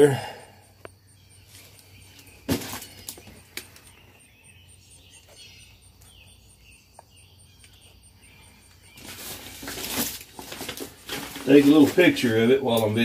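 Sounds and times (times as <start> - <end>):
packaging crackling: 9.0 - 12.3.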